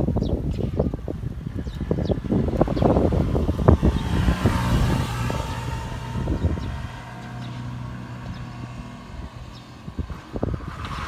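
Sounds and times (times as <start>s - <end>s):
faint sparrow chirps: 0.2s - 0.9s, 6.4s - 9.8s
loud low rumble: 0.7s - 11.0s.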